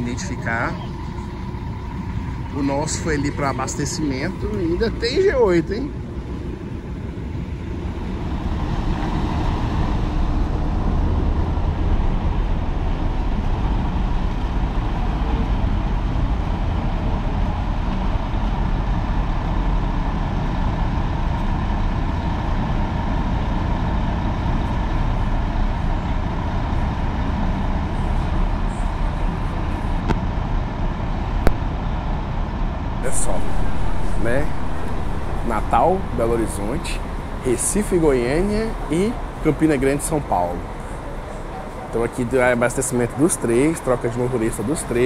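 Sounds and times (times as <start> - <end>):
diesel engines rumbling: 0.0 - 45.0.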